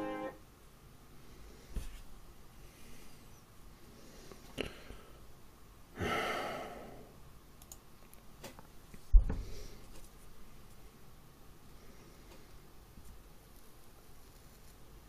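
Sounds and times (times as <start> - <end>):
man sighing heavily: 6.0 - 7.1
faint clicks: 7.6 - 8.6
deep thump: 9.1 - 9.5.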